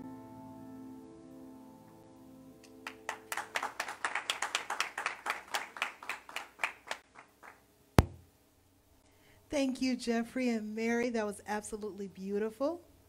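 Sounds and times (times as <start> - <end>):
audience applause: 2.8 - 7.6
low thump: 8.0 - 8.3.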